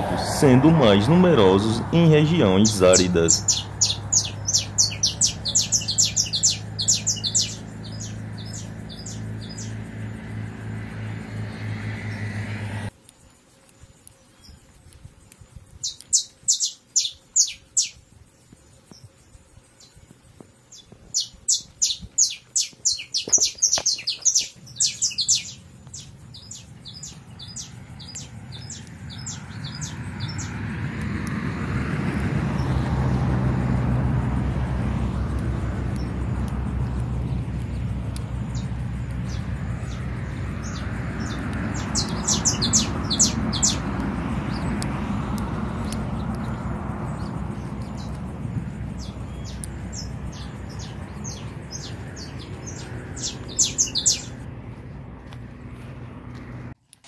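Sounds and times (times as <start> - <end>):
low rumbling noise: 0.0 - 12.9, 25.5 - 56.8
finch singing: 0.4 - 9.8, 15.8 - 18.0, 20.7 - 30.6, 35.9 - 44.8, 45.8 - 54.4.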